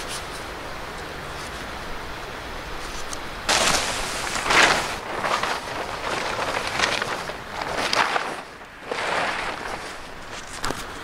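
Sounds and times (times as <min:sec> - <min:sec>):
plastic tarp rustling and crinkling: 0:02.9 - 0:11.0.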